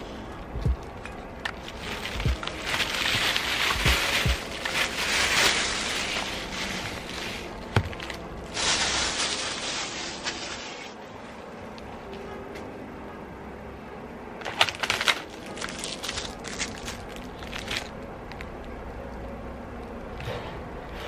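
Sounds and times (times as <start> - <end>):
plastic wrapping crackling: 0.6 - 11.0, 14.4 - 18.5.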